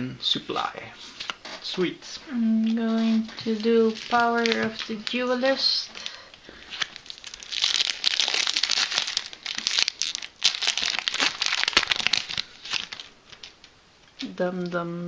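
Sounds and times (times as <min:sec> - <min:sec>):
foil wrapper crinkling and tearing: 0:03.1 - 0:13.6.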